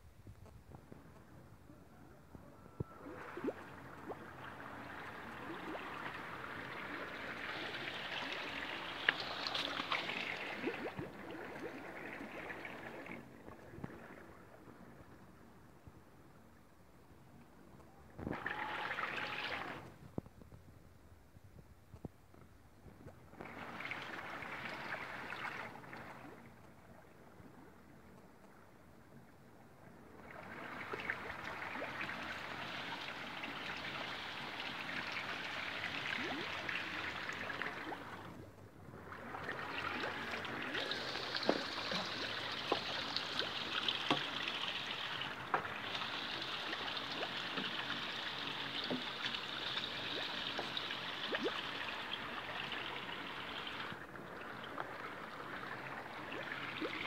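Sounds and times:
running water hiss: 3.0s - 14.3s, 18.2s - 20.0s, 23.3s - 26.4s, 39.1s - 57.0s.

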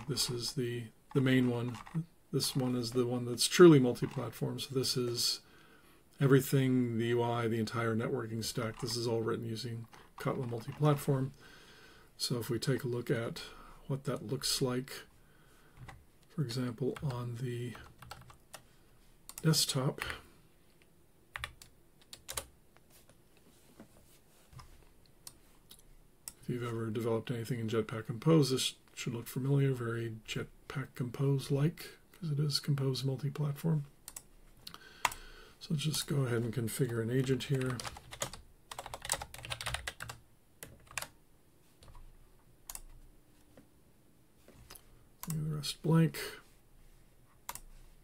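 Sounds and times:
typing on computer keyboard: 1.1s - 2.0s, 17.9s - 18.4s, 21.4s - 22.5s, 37.5s - 41.1s.

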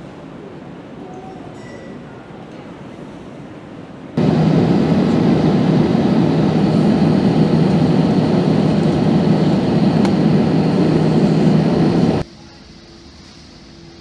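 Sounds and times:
jet engines flying overhead: 4.1s - 12.3s
low hum: 4.2s - 12.2s.

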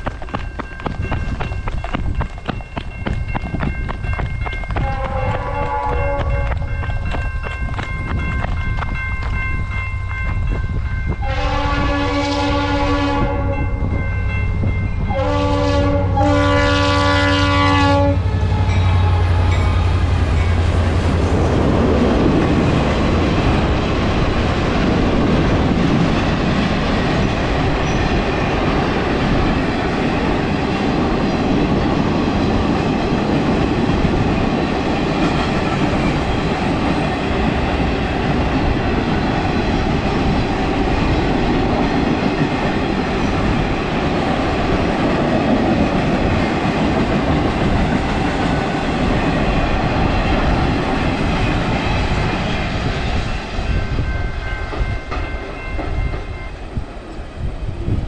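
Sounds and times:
clickety-clack over rail joints: 0.0s - 11.4s, 19.6s - 57.0s
locomotive air horn blasts: 4.8s - 6.6s, 11.2s - 13.8s, 15.1s - 19.9s.

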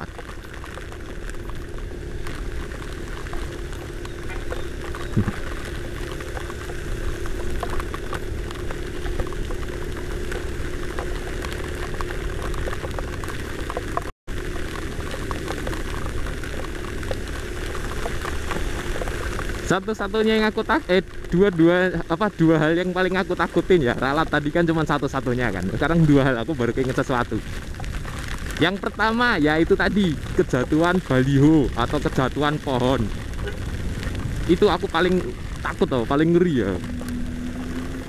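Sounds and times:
scooter engine hum: 0.0s - 21.9s, 32.6s - 38.0s
hiss of heavy rain: 0.0s - 38.0s
raindrops ticking on helmet: 0.0s - 38.0s.

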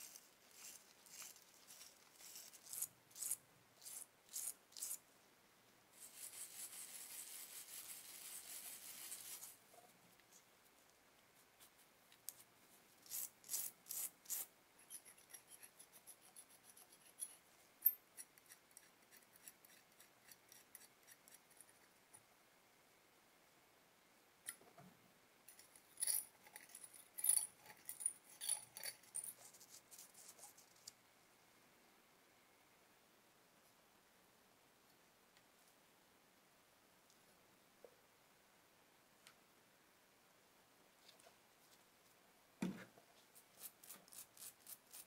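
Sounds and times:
small metal parts clicking: 25.5s - 29.3s.

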